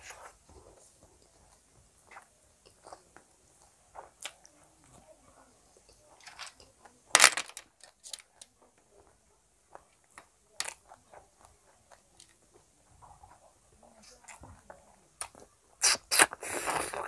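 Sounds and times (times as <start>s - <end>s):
chewing and wet mouth sounds: 0.5s - 5.0s, 13.3s - 17.0s.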